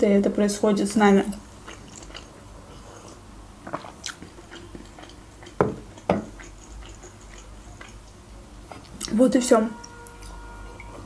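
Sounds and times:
wet mouth clicks: 0:03.1 - 0:08.2.

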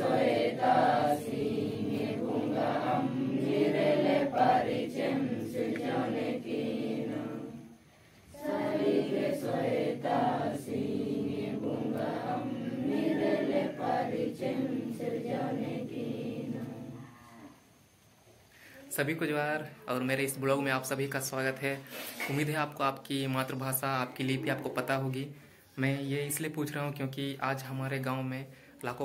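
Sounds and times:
group singing a devotional chant: 0:00.0 - 0:17.0.

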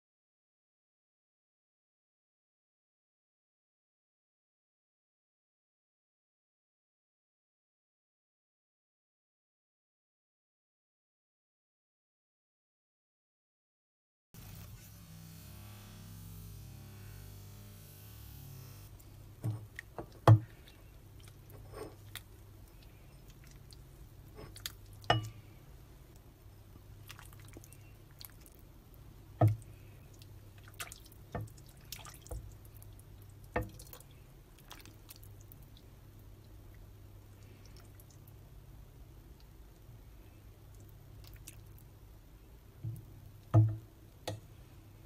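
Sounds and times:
faint low hum: 0:14.4 - 0:45.0
ladle clinking against pot and bowl: 0:24.4 - 0:25.4
broth dripping and splashing: 0:27.0 - 0:38.4, 0:40.7 - 0:41.9.

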